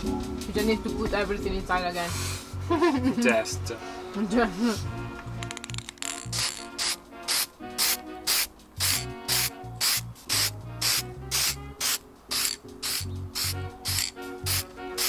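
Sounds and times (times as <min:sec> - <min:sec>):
background music with steady beat: 0:00.0 - 0:15.0
hissing shaker strokes: 0:06.3 - 0:15.0.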